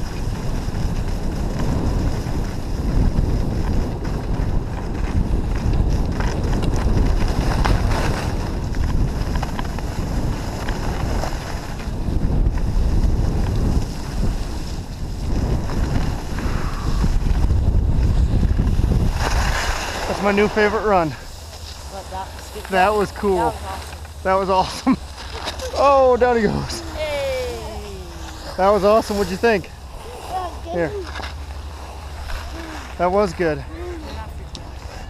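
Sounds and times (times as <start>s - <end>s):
wind rushing over microphone: 0.0s - 35.0s
skis hissing on snow: 12.6s - 17.4s, 18.1s - 34.2s.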